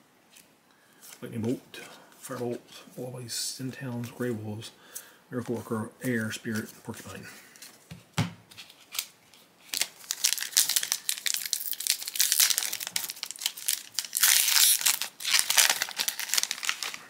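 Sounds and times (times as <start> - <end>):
foil wrapper crinkling: 8.6 - 17.0
wrapper ripping: 8.6 - 17.0.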